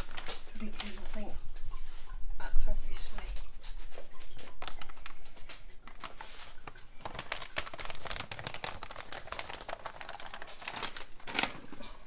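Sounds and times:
paper bag crinkling: 0.0s - 1.3s, 4.5s - 12.0s.

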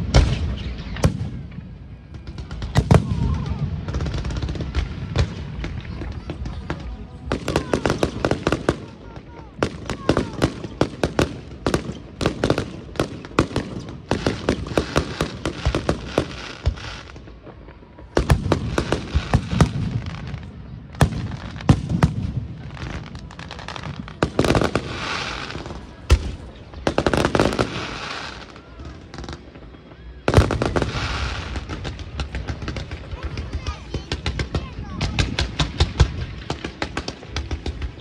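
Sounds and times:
fireworks bangs and crackling: 0.0s - 38.0s.

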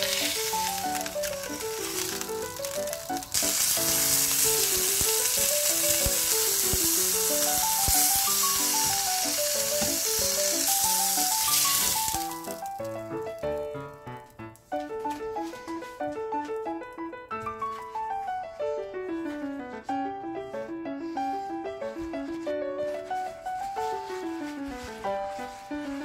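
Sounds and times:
meat sizzling in a frying pan: 0.0s - 12.9s
background music: 0.0s - 26.0s.

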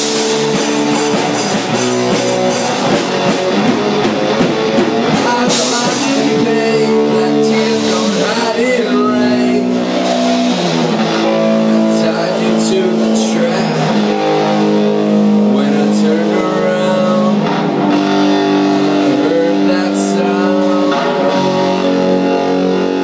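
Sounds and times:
drum kit with cymbals: 0.0s - 23.0s
electric guitars playing chords: 0.0s - 23.0s
person singing: 4.3s - 23.0s.

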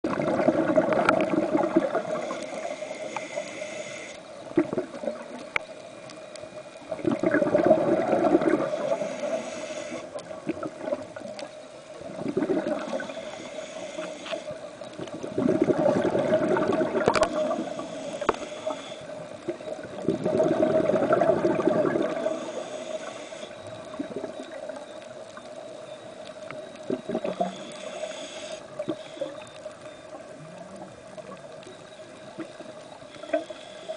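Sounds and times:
steady hum: 0.1s - 33.9s
diver breathing through regulator: 1.9s - 4.2s, 8.1s - 10.2s, 12.6s - 14.6s, 16.0s - 19.3s, 22.0s - 23.7s, 27.1s - 29.6s, 33.1s - 33.9s.

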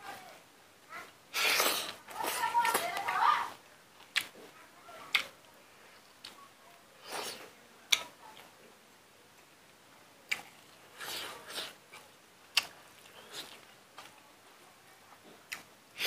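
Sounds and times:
man chewing food: 1.3s - 2.8s, 3.9s - 4.5s, 5.1s - 5.3s, 10.3s - 14.2s, 15.1s - 16.0s.

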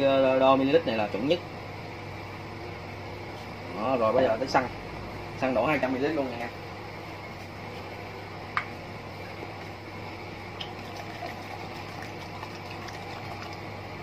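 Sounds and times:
liquid pouring into plastic cup: 10.6s - 13.7s.

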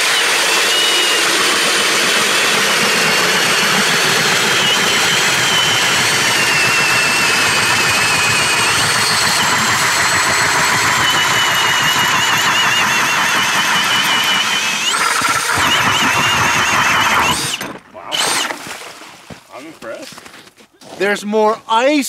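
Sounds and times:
drill motor whine: 0.0s - 18.6s
auger blades grinding ice: 0.0s - 19.3s.

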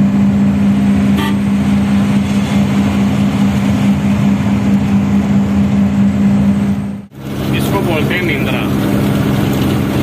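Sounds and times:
diesel truck engine droning: 0.0s - 10.0s
road noise: 0.0s - 10.0s.

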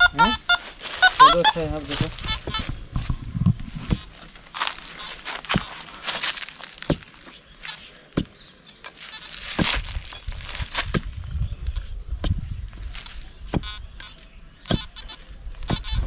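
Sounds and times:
soil and leaves crunching: 0.0s - 16.0s
digging bar striking soil: 3.8s - 11.2s.

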